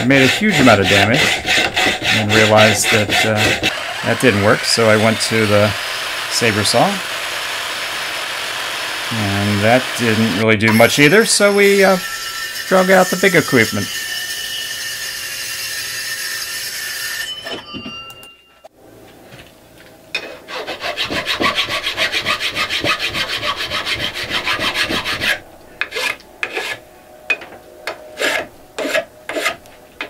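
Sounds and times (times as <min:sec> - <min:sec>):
metal file rasping aluminum: 0:00.0 - 0:06.7, 0:09.7 - 0:17.3, 0:20.2 - 0:26.8, 0:28.2 - 0:29.6
circular saw cutting aluminum: 0:00.0 - 0:17.5.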